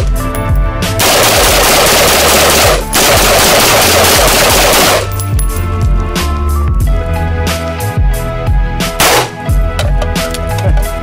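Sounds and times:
background music: 0:00.0 - 0:11.0
rifle gunshots: 0:01.0 - 0:05.1, 0:09.0 - 0:09.4.

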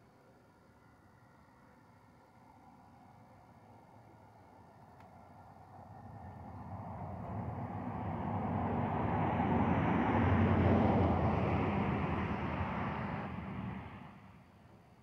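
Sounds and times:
vehicle driving past: 0:05.8 - 0:14.5.

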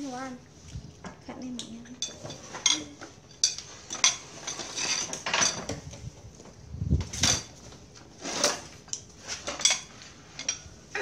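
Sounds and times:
spoons clinking on ceramic plates: 0:01.6 - 0:05.8, 0:09.4 - 0:10.8.

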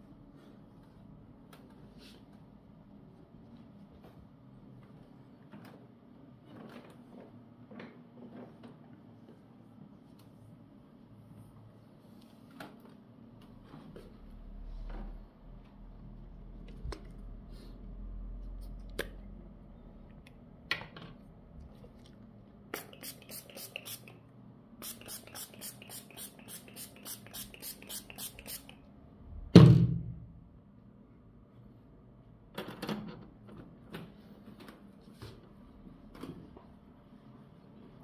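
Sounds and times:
spray bottle hissing squirts: 0:22.8 - 0:24.2, 0:24.8 - 0:28.8.

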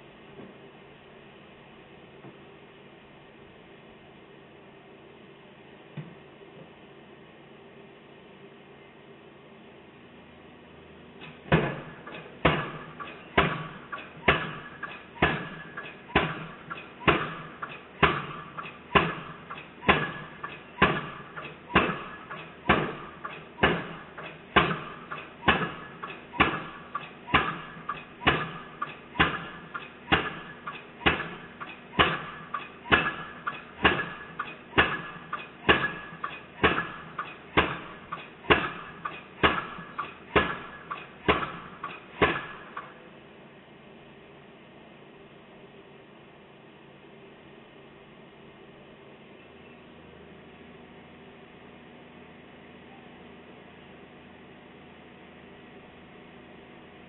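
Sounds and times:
piling hammer blows with metallic ring: 0:11.2 - 0:43.0.

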